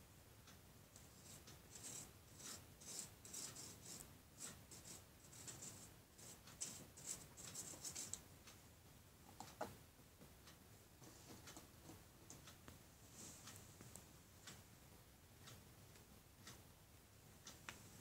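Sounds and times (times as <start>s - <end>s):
glue stick rubbing on cardboard: 1.2s - 8.2s.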